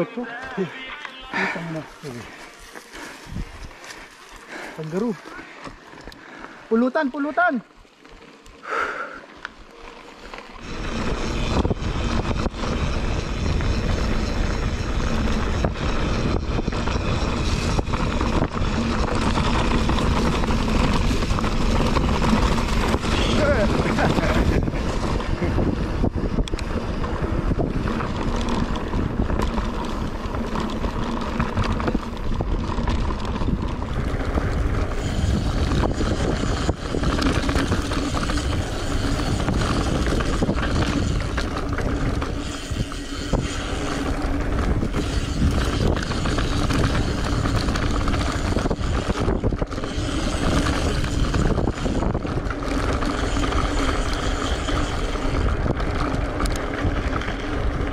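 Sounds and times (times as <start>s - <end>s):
bike tyres on dirt: 0.0s - 57.9s
wind rushing over microphone: 10.6s - 57.9s.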